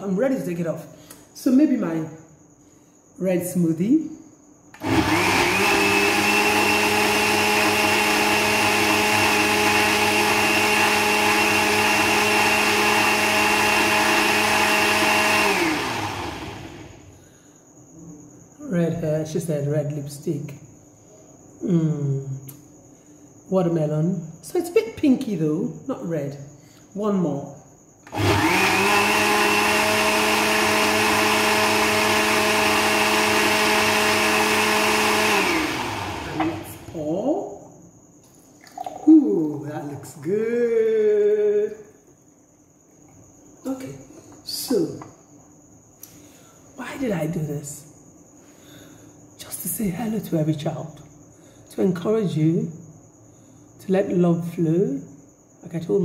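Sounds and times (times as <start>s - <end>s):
electric blender running: 4.8s - 17.1s, 28.1s - 37.0s.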